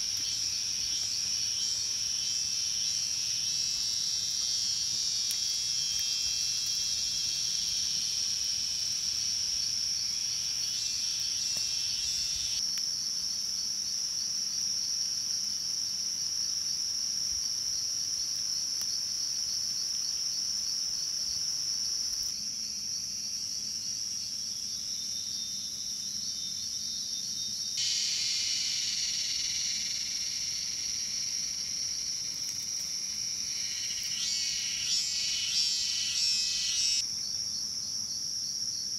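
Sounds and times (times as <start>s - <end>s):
insects trilling: 0.0s - 38.9s.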